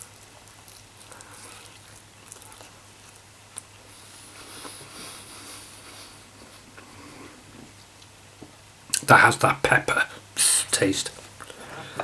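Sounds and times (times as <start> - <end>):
person chewing meat: 0.0 - 4.9
soft hiss: 0.0 - 12.0.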